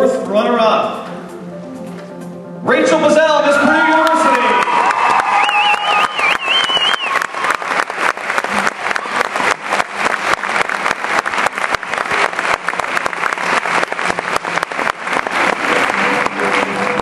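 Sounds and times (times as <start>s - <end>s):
audience applauding: 3.8s - 17.0s.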